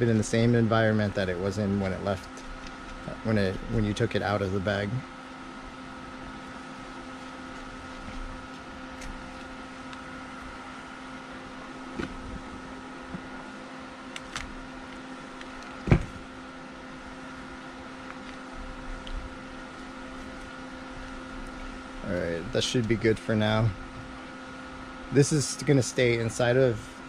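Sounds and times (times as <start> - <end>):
steady machine hum: 0.0 - 27.0
sharp thump: 15.8 - 16.2.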